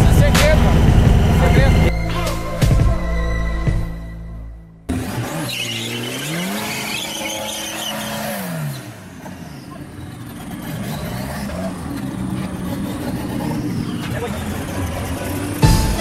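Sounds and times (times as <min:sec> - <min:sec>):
car engine revving: 0:00.0 - 0:16.0
tyres spinning and squealing: 0:04.9 - 0:16.0.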